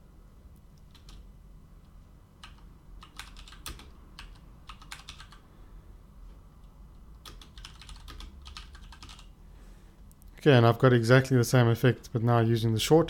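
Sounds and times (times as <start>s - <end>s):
faint low hum: 0.0s - 13.0s
typing on a keyboard: 0.9s - 1.2s, 2.4s - 5.4s, 7.1s - 9.3s.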